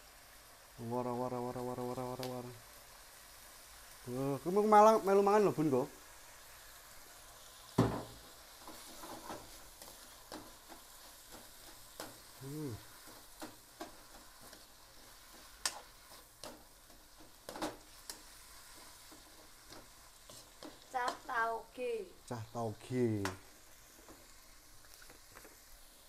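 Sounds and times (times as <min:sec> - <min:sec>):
vegetables sizzling in a wok: 0:00.0 - 0:26.0
spatula scraping and knocking wok: 0:07.7 - 0:21.6.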